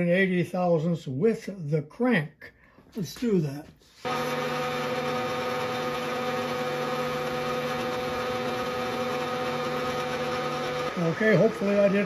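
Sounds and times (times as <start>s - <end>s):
milling machine motor hum: 4.0s - 12.0s.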